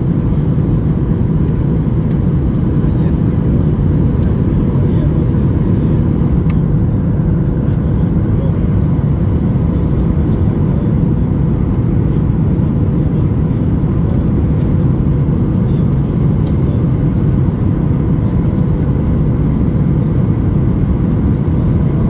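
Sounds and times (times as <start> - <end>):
jet engine rumble: 0.0 - 22.0.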